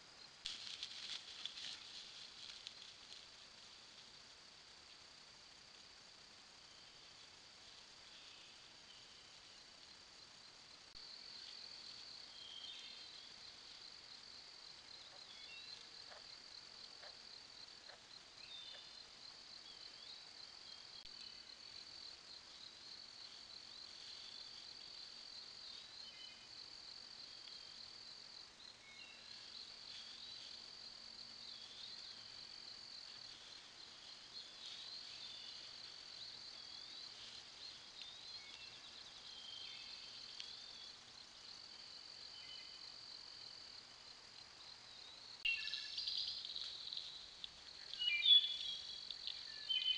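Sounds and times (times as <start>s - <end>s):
crickets trilling: 0.0s - 49.9s
bird chirps: 47.9s - 49.9s.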